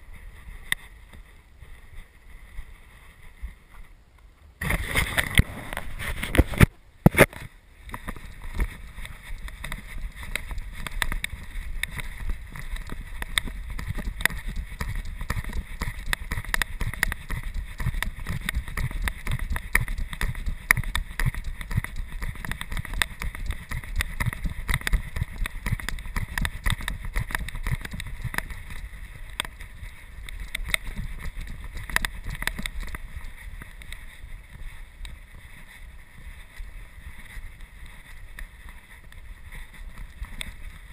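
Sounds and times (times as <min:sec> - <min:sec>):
camera movement clicks and knocks: 0:04.6 - 0:34.0.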